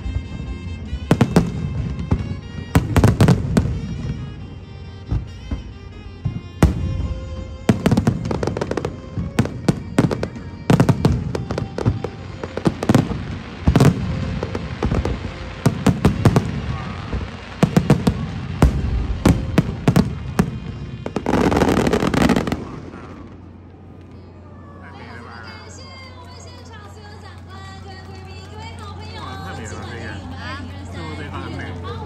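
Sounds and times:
fireworks bangs: 0.0 - 24.0
fireworks crackling: 0.0 - 24.2, 24.9 - 32.0.

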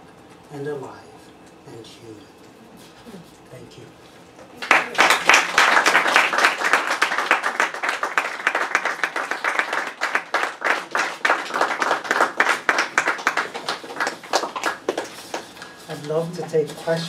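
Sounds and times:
audience applauding: 4.6 - 15.7.

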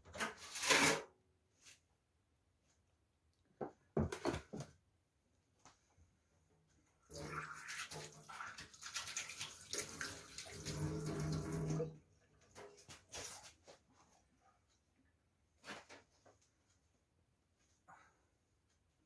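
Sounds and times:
water running from tap: 7.1 - 12.0.

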